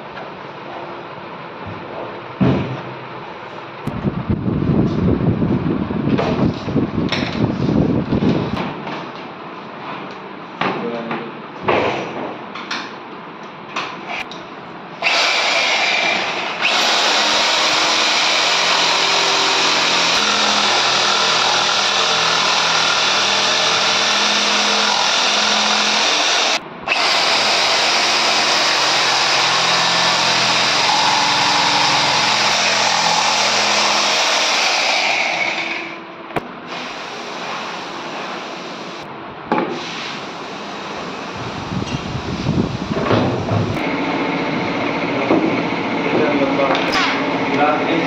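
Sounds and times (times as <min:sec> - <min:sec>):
electric jigsaw cutting wood: 0:15.0 - 0:35.9.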